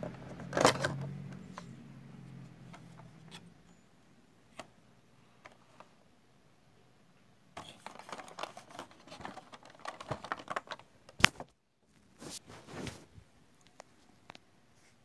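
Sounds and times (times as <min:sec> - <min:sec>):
cardboard and plastic packaging rustling: 0:07.6 - 0:13.2
soft swishes of packaging: 0:12.0 - 0:13.2.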